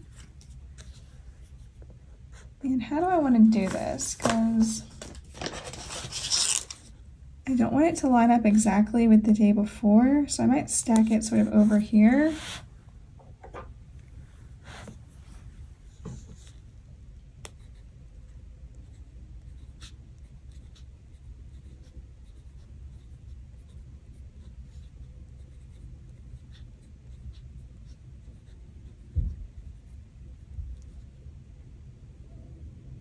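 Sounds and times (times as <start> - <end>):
steady low hum: 0.0 - 33.0
pen scratching on paper: 18.8 - 30.0.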